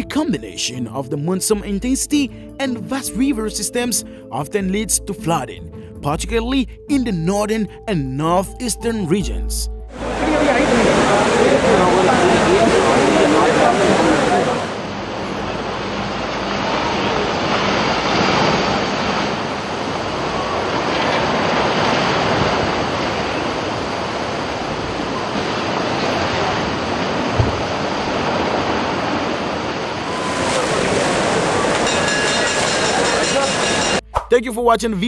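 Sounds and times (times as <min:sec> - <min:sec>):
floodwater rushing in river: 0:09.9 - 0:34.0.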